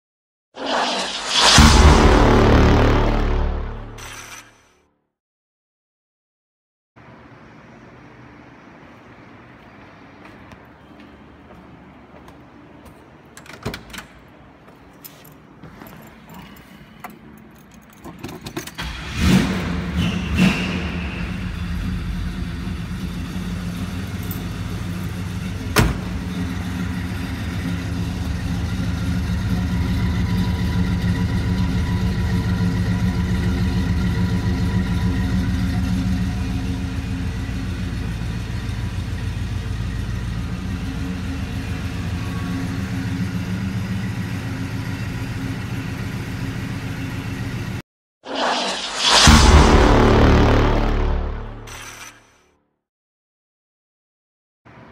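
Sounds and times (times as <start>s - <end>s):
car engine cranking and idling: 21.4s - 47.8s.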